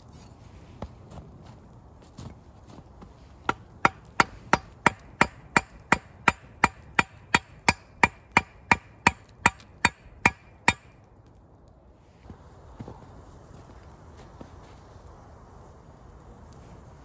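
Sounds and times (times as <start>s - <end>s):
wood being chopped: 3.4s - 11.1s.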